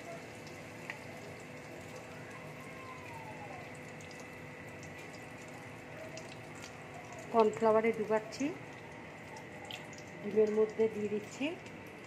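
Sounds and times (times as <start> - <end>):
food deep-frying in hot oil: 0.0 - 12.0
small crackles and pops: 0.4 - 2.1, 3.8 - 11.8.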